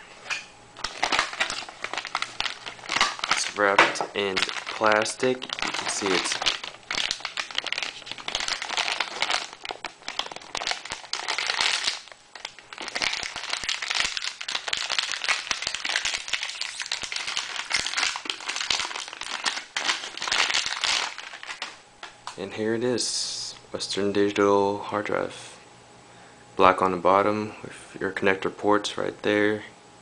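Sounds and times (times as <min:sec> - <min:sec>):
plastic wrapping crinkling: 0:00.8 - 0:22.2.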